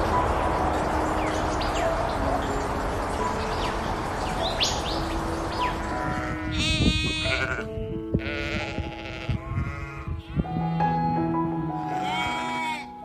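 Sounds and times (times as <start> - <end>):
soft background music: 0.0 - 13.0
sheep bleating: 5.9 - 10.9, 11.8 - 13.0.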